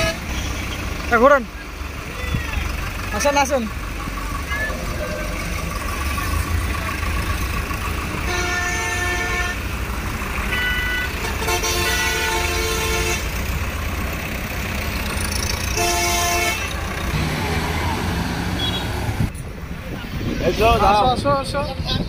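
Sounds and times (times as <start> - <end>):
vehicle horns honking: 0.0 - 0.8, 8.1 - 9.7, 10.4 - 13.5, 15.4 - 19.3
tractor diesel engines rumbling: 0.0 - 22.0.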